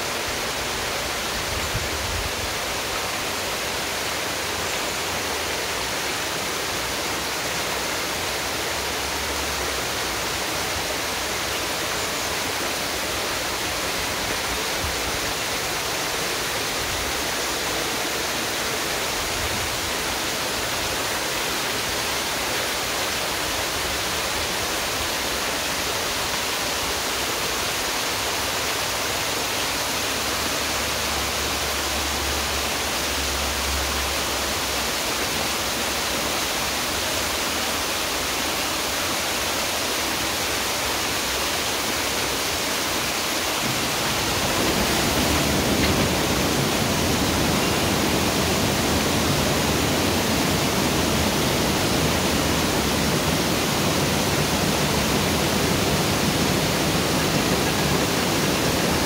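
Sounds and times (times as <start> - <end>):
water gushing into canal lock: 0.0 - 59.0.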